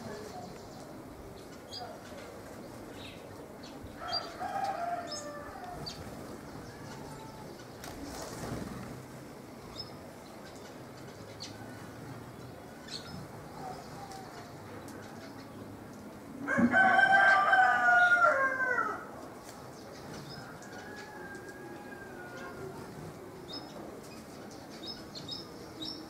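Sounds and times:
small birds chirping: 0:00.0 - 0:16.0, 0:22.2 - 0:26.0
rooster crowing: 0:04.0 - 0:05.8, 0:16.5 - 0:19.1, 0:20.4 - 0:22.8.

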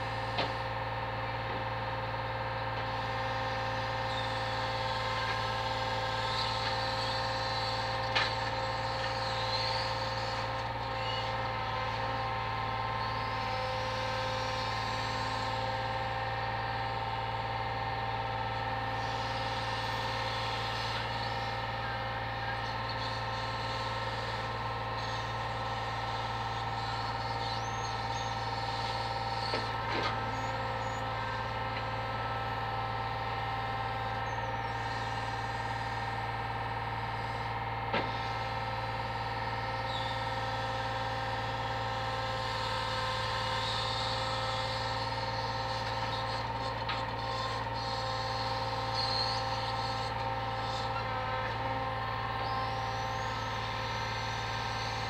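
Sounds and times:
hydraulic crane whine: 0:00.0 - 0:55.0
truck engine drone: 0:00.0 - 0:55.0.

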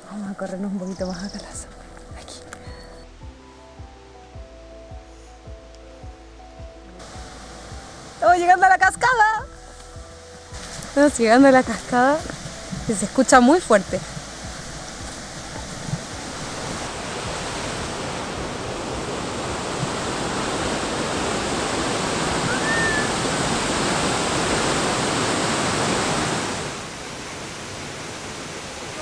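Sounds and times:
waterfall rushing: 0:07.0 - 0:29.0
short high whistle: 0:22.5 - 0:23.2.

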